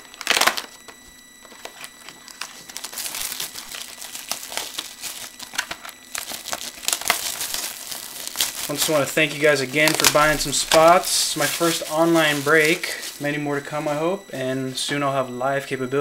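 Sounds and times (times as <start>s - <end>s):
plastic and foil packaging crinkling: 0.0s - 14.8s.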